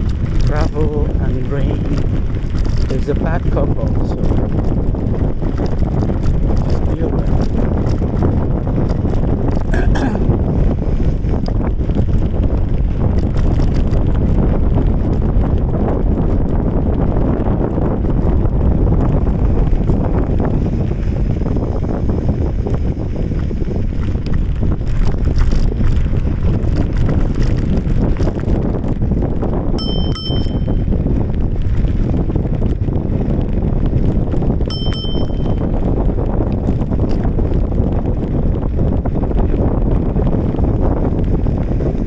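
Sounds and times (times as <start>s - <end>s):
wind rumble on microphone: 0.0s - 42.0s
bicycle bell double ding: 29.8s - 30.9s, 34.7s - 35.6s.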